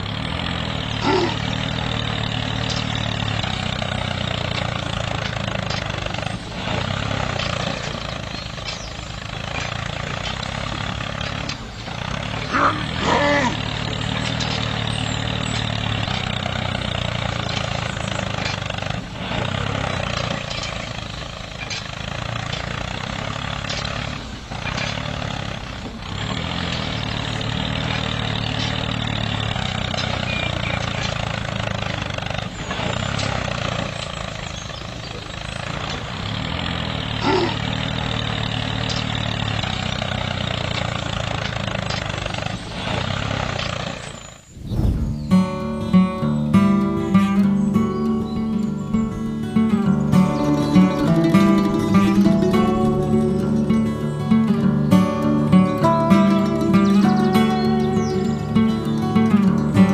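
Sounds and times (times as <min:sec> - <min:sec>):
tractor motor running: 0:00.0 - 0:59.9.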